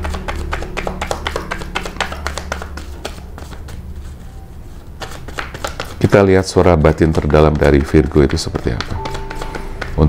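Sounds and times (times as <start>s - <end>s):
low steady hum: 0.0s - 6.0s
cards shuffled by hand: 0.0s - 10.0s.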